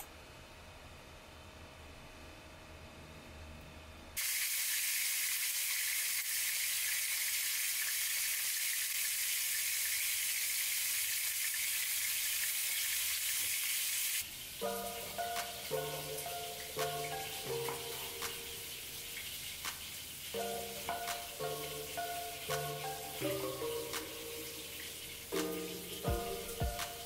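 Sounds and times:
food sizzling in hot oil: 4.2 - 27.0
soft music notes: 14.6 - 18.7, 20.4 - 27.0.

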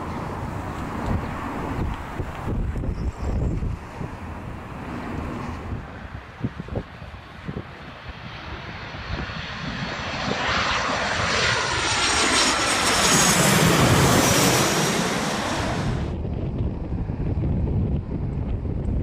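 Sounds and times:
jet airliner passing overhead: 0.0 - 19.0.

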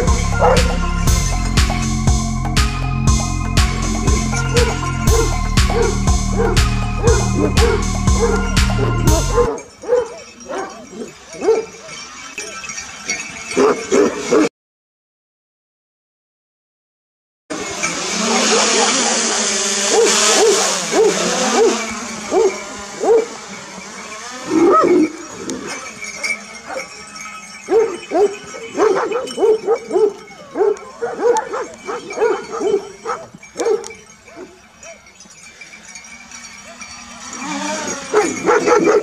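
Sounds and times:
dogs barking deeply: 0.0 - 1.1, 4.0 - 12.0, 13.6 - 14.5, 18.3 - 23.7, 24.5 - 35.1, 37.8 - 39.0
drone rotors whining: 0.0 - 9.5, 17.5 - 39.0
dog rising-and-falling call: 17.5 - 33.3, 36.2 - 39.0.

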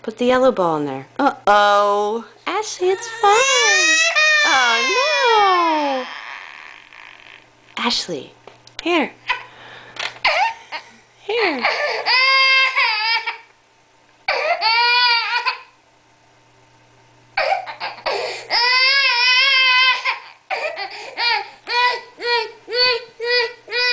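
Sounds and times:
baby crying: 2.8 - 7.0, 11.6 - 13.5, 14.3 - 15.8, 17.4 - 23.9.

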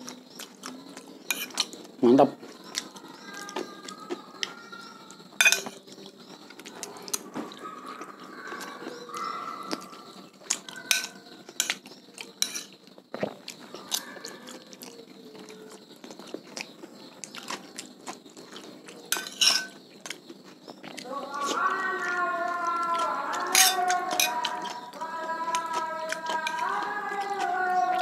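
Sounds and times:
metal spoon scraping ceramic plate: 1.2 - 1.8, 5.4 - 5.8, 10.9 - 11.8, 12.4 - 12.8, 19.1 - 19.8, 23.5 - 24.4
chewing close to microphone: 11.5 - 19.1, 19.9 - 28.0.

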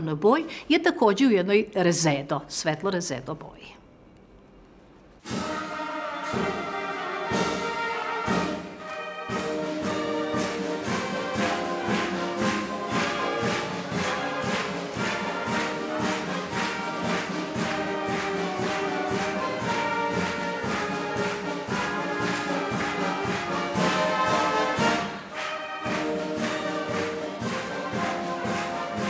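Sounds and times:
orchestral music with a beat: 5.2 - 29.0.

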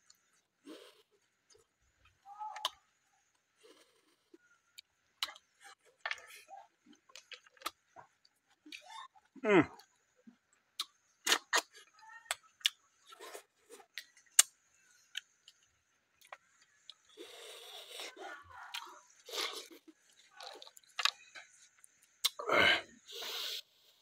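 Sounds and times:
person chewing and sucking snails: 0.0 - 22.5.

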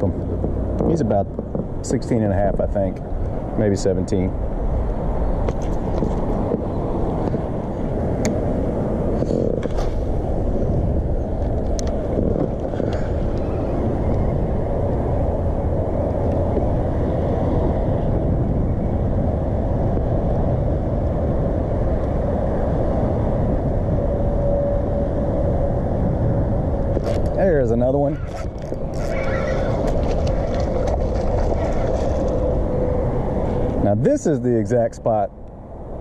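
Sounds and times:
wind buffeting microphone: 0.0 - 36.0.

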